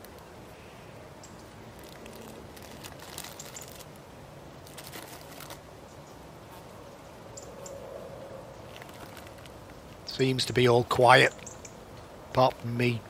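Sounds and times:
crisp packet crinkling: 0:01.7 - 0:04.0, 0:04.6 - 0:05.6, 0:08.7 - 0:09.7.

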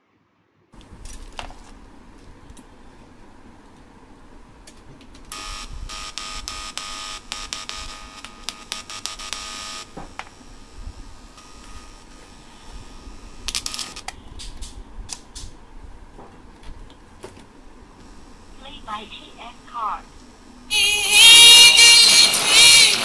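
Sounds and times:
crackles: 0:04.6 - 0:15.6, 0:17.4 - 0:23.0
speaker buzz: 0:05.3 - 0:14.1, 0:18.0 - 0:23.0.

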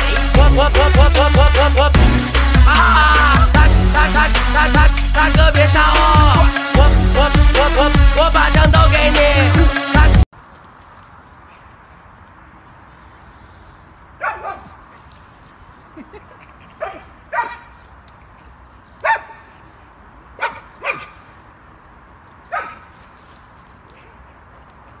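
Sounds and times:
dog barking: 0:14.2 - 0:14.8, 0:16.8 - 0:17.7, 0:19.0 - 0:19.5, 0:20.4 - 0:21.2, 0:22.5 - 0:22.9.

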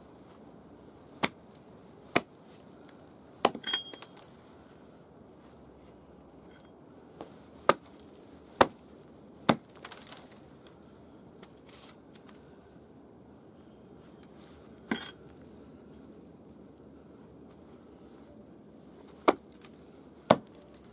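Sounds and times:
hatchet chopping wood: 0:01.2 - 0:01.4, 0:02.1 - 0:02.3, 0:03.4 - 0:04.2, 0:07.7 - 0:08.0, 0:08.6 - 0:08.8, 0:09.5 - 0:10.0, 0:19.2 - 0:19.6, 0:20.3 - 0:20.8.

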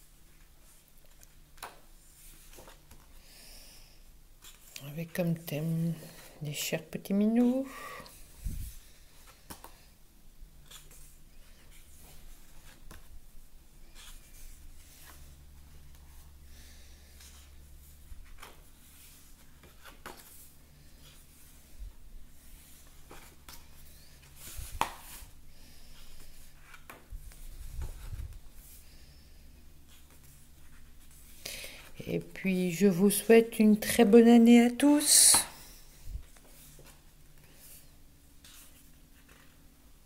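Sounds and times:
paper pages turning: 0:38.4 - 0:39.7.

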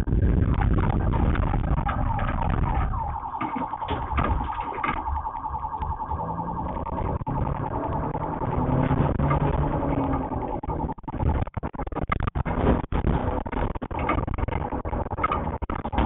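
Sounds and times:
car engine and road noise: 0:00.0 - 0:16.0
electronic warning beep: 0:01.8 - 0:11.0.

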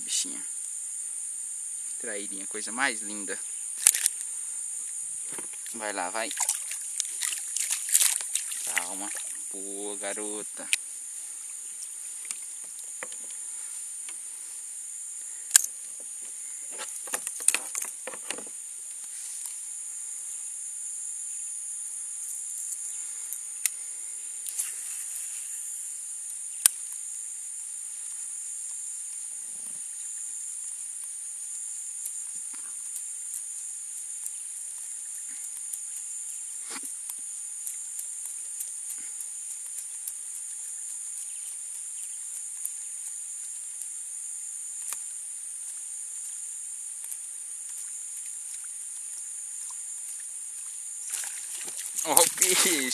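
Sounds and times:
insect drone: 0:00.0 - 0:52.9
sharp clicks and knocks: 0:16.7 - 0:18.5.

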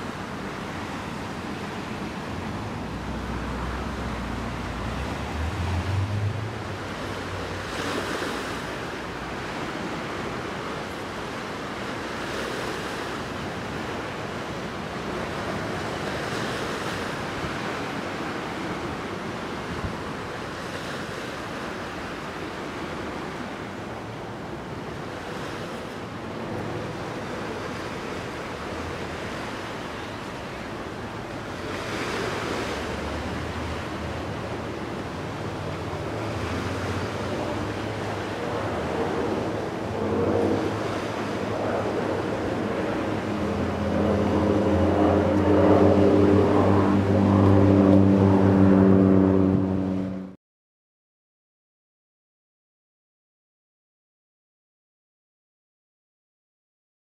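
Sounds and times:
small waves washing ashore: 0:00.0 - 0:50.2
low engine hum: 0:00.4 - 0:10.2, 0:26.1 - 0:50.4
wind on microphone: 0:23.0 - 0:50.4.

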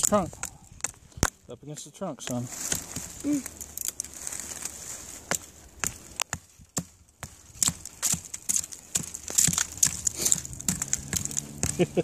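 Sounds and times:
stone axe chopping wood: 0:05.2 - 0:12.0.

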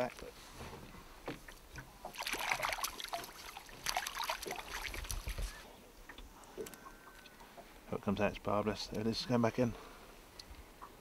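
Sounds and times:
fish splashing in net: 0:02.1 - 0:05.4.

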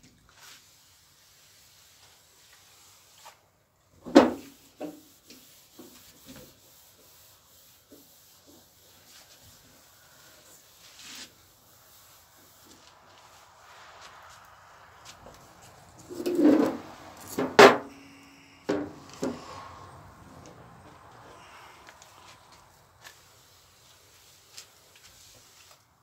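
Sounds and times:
faint rubbing on metal panel: 0:00.3 - 0:17.9, 0:18.7 - 0:19.8.

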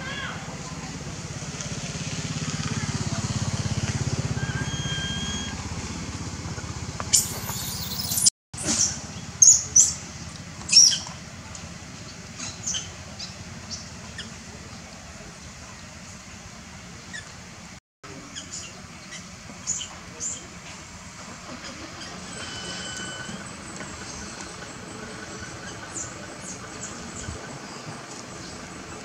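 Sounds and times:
baby monkey squealing: 0:04.4 - 0:05.5, 0:07.1 - 0:08.3.

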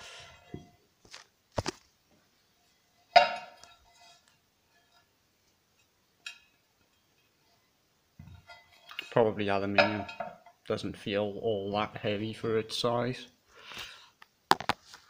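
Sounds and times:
metal turntable platter clink: 0:09.7 - 0:10.5.

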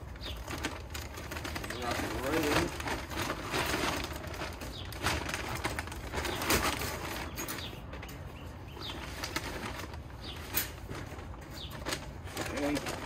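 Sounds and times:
paper bag rustling and crinkling: 0:00.0 - 0:13.0
bird chirps: 0:06.2 - 0:09.3.

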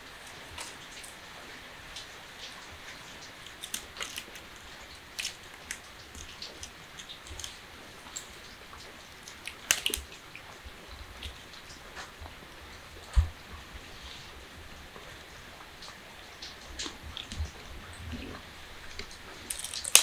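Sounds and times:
kitten claws scratching basket: 0:03.2 - 0:08.5, 0:09.2 - 0:10.2.

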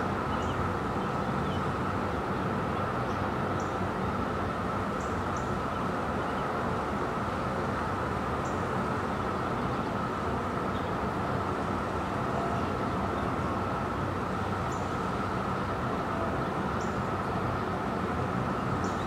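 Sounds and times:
distant traffic roar: 0:00.0 - 0:19.0.

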